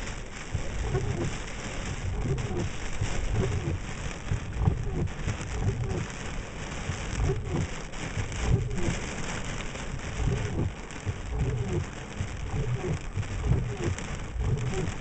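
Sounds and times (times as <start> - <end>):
heavy rain on windscreen: 0.0 - 15.0.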